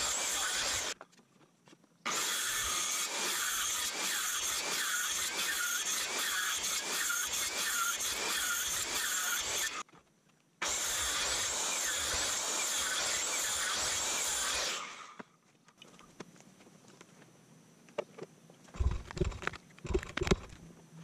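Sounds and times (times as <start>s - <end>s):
handsaw cutting through log: 0.0s - 1.0s, 2.1s - 9.8s, 10.6s - 15.2s.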